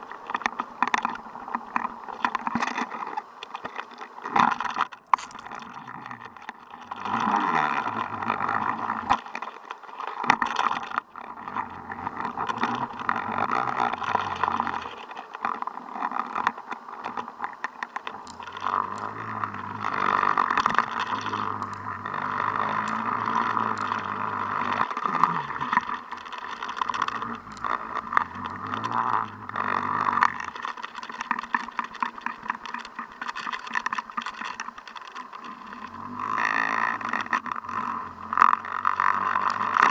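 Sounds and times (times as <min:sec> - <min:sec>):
low droning hum: 0:11.0 - 0:33.3.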